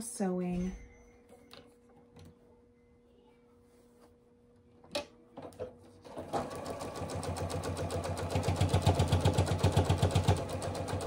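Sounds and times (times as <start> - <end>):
sewing machine stitching: 6.0 - 11.0.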